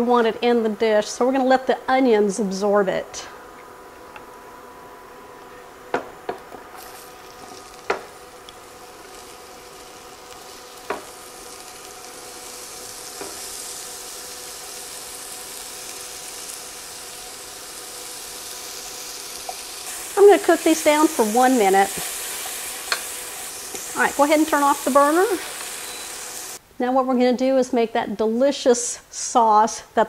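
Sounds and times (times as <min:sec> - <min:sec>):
onion sizzling in skillet: 0:05.8 - 0:26.6.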